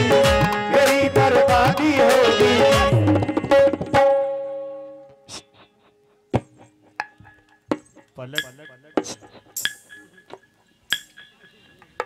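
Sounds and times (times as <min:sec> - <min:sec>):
qawwali music held notes: 0:00.0 - 0:06.2.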